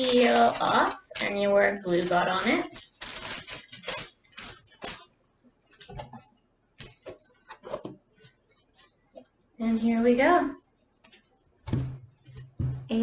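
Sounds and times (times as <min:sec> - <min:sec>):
wax paper crinkling: 0:00.0 - 0:05.1
soft rustles and taps of pages: 0:05.7 - 0:09.4, 0:11.0 - 0:12.9.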